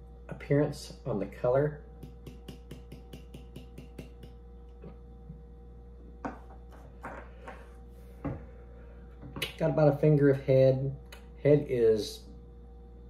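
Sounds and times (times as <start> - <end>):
can knocking on wooden table: 6.2 - 7.2.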